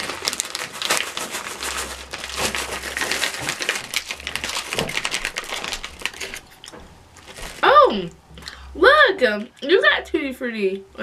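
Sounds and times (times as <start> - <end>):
plastic candy bag crinkling: 0.0 - 8.5.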